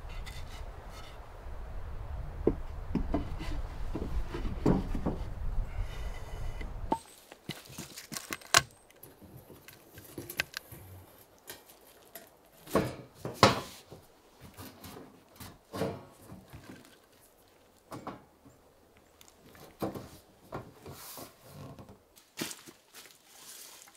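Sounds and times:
metal pipe handling clicks and knocks: 0:06.9 - 0:10.7.

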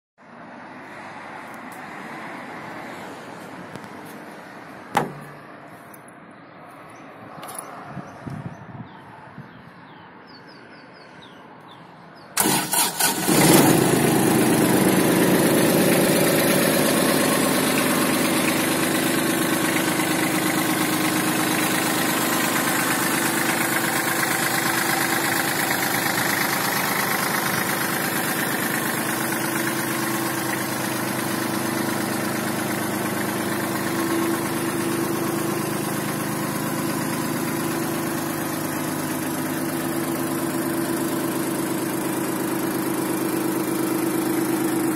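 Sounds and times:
engine cranking: 0:12.4 - 0:30.8
diesel engine idling: 0:12.4 - 0:44.9.

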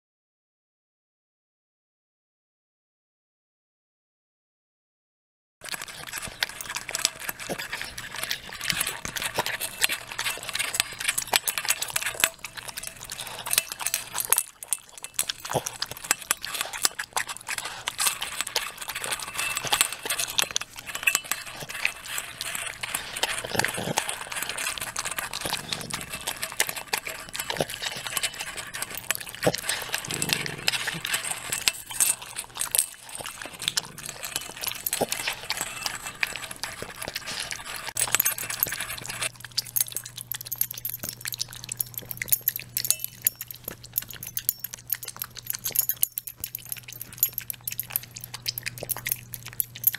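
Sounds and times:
dogs chewing and licking: 0:05.6 - 0:49.9
clinks against metal bowl: 0:38.0 - 0:49.9.

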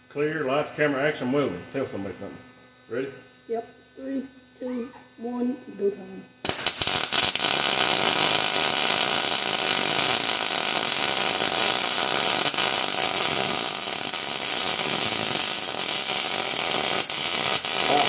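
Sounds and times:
arc welding crackling hiss: 0:06.4 - 0:18.0.

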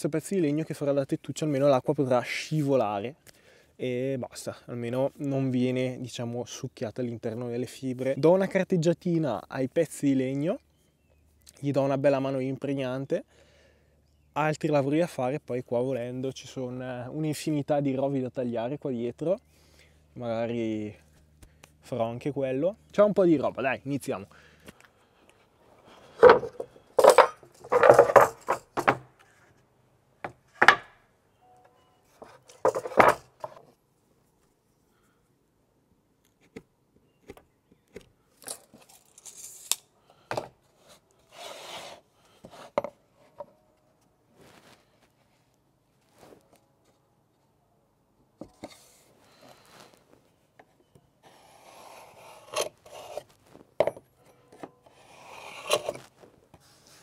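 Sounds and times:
wood scraping and rubbing: 0:25.9 - 0:29.6, 0:32.2 - 0:33.7, 0:51.3 - 0:53.7, 0:54.9 - 0:57.0
wood pieces knocking together: 0:26.2 - 0:29.1, 0:30.2 - 0:31.0, 0:32.5 - 0:33.6.

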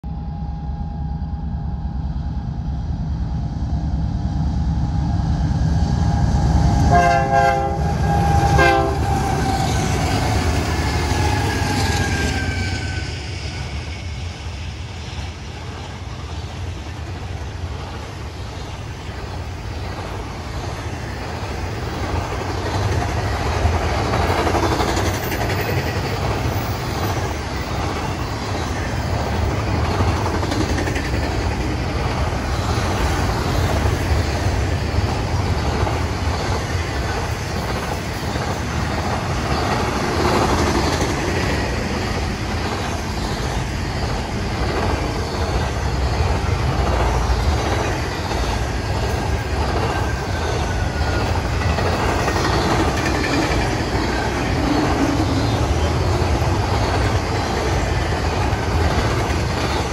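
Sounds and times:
locomotive horn: 0:06.9 - 0:09.4
freight cars rumbling and clattering: 0:15.6 - 0:59.9.

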